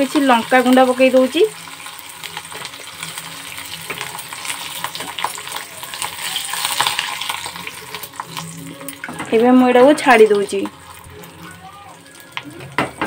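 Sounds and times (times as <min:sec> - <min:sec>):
spices sizzling and popping in oil: 0:00.0 - 0:13.0.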